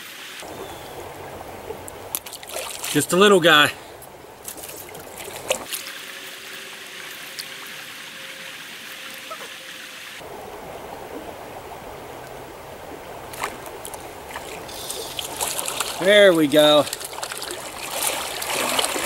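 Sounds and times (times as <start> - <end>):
stream water rushing: 0.0 - 19.0.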